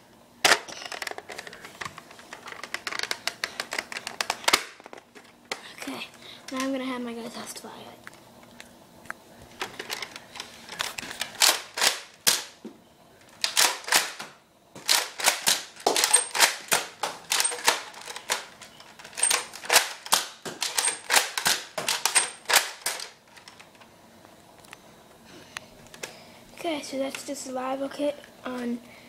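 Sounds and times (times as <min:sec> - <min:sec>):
toy dart blaster priming and firing: 0:11.4 - 0:12.6, 0:13.4 - 0:23.2.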